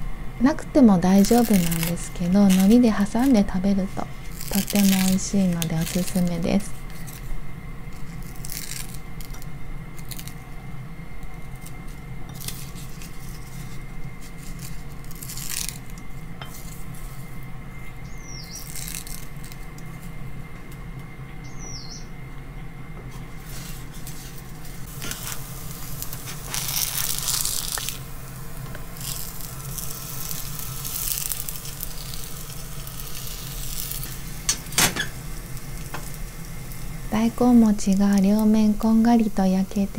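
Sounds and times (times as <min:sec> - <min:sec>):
steady hum: 0:00.0 - 0:39.9
food sizzling in oil: 0:01.1 - 0:10.4, 0:11.6 - 0:17.5, 0:23.4 - 0:39.9.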